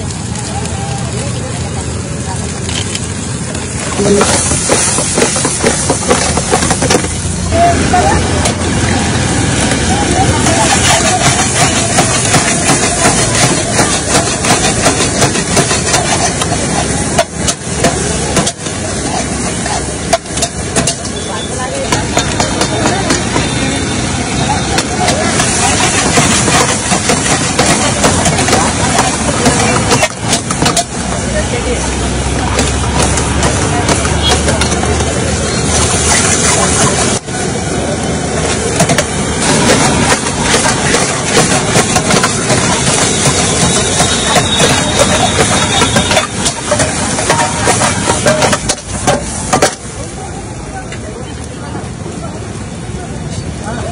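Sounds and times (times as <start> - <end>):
eggs sizzling in hot oil: 0.0 - 37.2
gas burner roaring: 0.0 - 51.5
metal ladle scraping a pan: 10.4 - 21.2, 24.7 - 31.0, 38.8 - 49.7.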